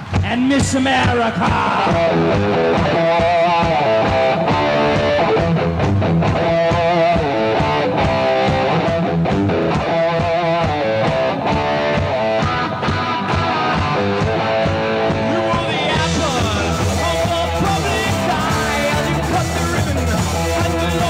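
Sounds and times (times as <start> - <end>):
electric guitar playing: 0.0 - 21.0
rock band playing: 0.0 - 21.0
person singing: 0.2 - 5.2, 15.1 - 21.0.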